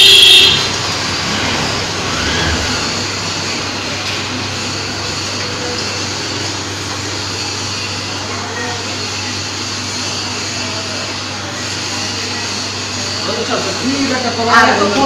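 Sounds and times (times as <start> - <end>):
loud high tone: 0.0 - 1.1
cycle rickshaw passing: 0.0 - 6.7
street traffic noise: 0.0 - 15.0.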